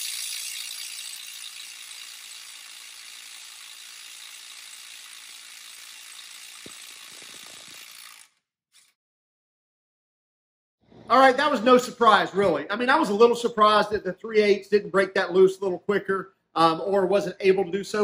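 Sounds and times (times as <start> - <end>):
impact wrench hammering: 6.5 - 7.7.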